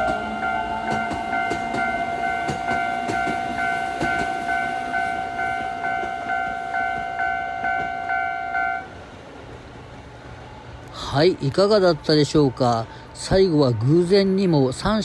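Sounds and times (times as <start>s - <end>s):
level crossing warning bell: 0.0s - 8.9s
train clattering: 0.0s - 15.0s.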